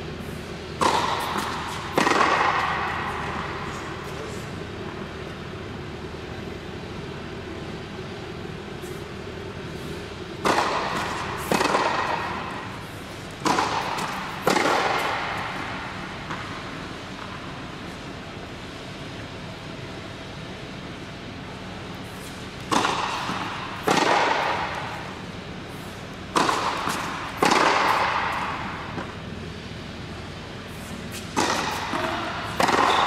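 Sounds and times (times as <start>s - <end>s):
steady low hum: 0.0s - 33.0s
tennis ball hits echoing: 0.8s - 3.5s, 10.4s - 12.8s, 13.4s - 16.6s, 22.6s - 25.2s, 26.3s - 29.2s, 31.3s - 33.0s.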